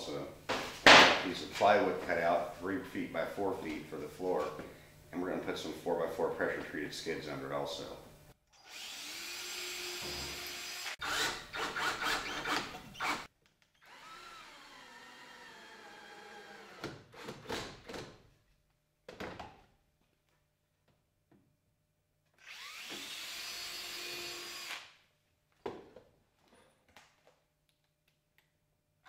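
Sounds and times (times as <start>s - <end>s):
cordless drill motor whining: 8.6s - 16.8s, 22.4s - 24.8s.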